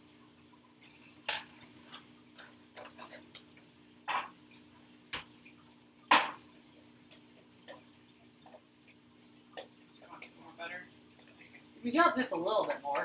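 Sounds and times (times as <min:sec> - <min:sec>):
oil popping and spitting: 0:01.3 - 0:10.1.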